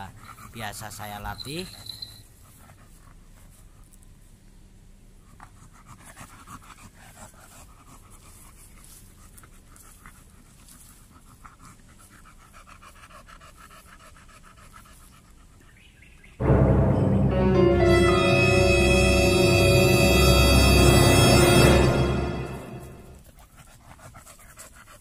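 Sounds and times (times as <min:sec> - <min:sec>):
dog panting: 0:00.0 - 0:03.9, 0:05.2 - 0:16.0, 0:23.2 - 0:25.0
loud music: 0:16.4 - 0:23.2.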